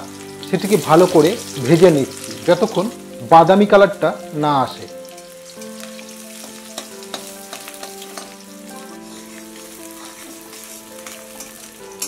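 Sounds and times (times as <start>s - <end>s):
onions sizzling in hot oil: 0.0s - 12.0s
soft background music: 0.0s - 12.0s
metal spatula scraping pan: 6.5s - 12.0s.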